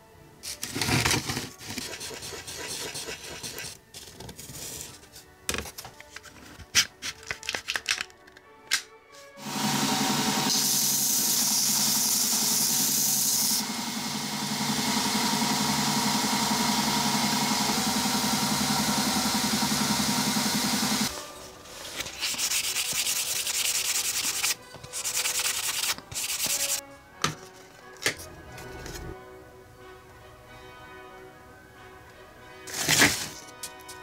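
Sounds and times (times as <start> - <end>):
sandpaper rubbing strokes: 1.6 - 3.8, 21.7 - 26.8
belt grinder sanding wood: 1.8 - 3.8, 22.2 - 26.8.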